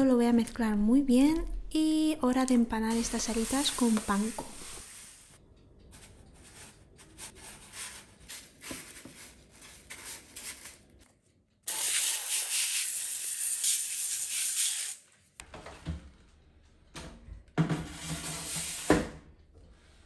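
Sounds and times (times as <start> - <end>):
breadcrumbs rustling in metal tray: 5.9 - 11.0.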